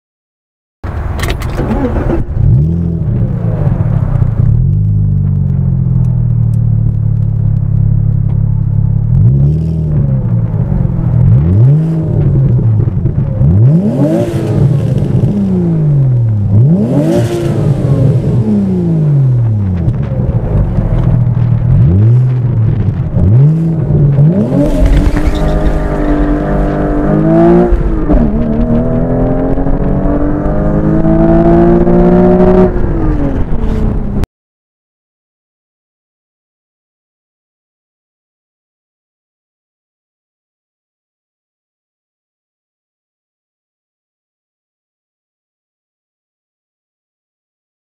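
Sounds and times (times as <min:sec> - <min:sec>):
car engine idling and revving: 0:00.8 - 0:34.3
car accelerating hard: 0:01.4 - 0:05.9, 0:09.1 - 0:34.2.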